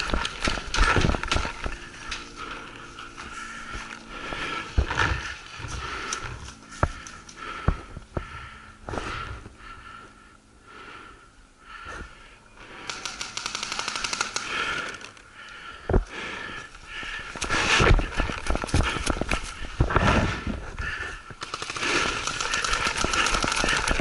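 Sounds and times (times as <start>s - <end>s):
paintball markers firing: 12.8s - 15.0s, 21.4s - 24.0s.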